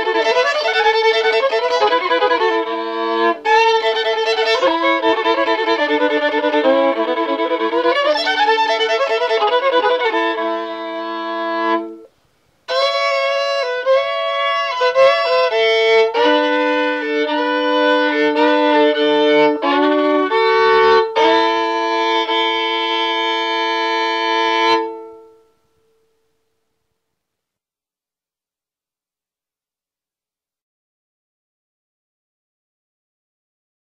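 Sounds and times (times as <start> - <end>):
fiddle playing double stops: 0.0 - 12.1, 12.7 - 25.5.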